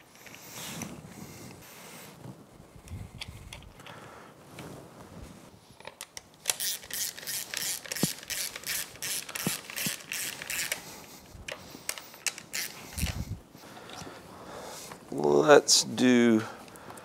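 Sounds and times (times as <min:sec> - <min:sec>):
ratchet wrench clicking: 0:06.5 - 0:10.8, 0:11.9 - 0:13.2.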